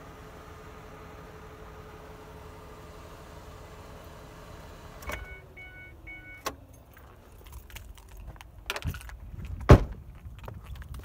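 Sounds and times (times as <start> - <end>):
loud sharp thump: 9.7 - 10.0.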